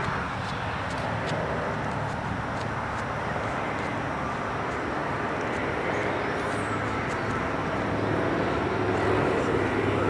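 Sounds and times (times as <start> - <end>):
outdoor noise: 0.0 - 10.0
propeller plane droning overhead: 0.0 - 10.0.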